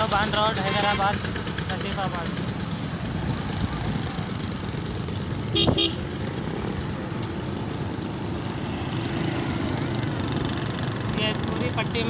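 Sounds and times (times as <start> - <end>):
motorcycle engine and road noise: 0.0 - 12.0
vehicle horn toots: 5.5 - 6.1.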